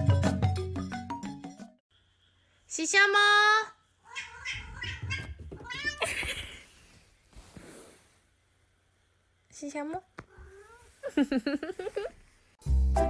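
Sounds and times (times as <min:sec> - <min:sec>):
cat meowing: 0:04.0 - 0:06.1
rustling noise: 0:05.6 - 0:08.9, 0:10.4 - 0:12.6.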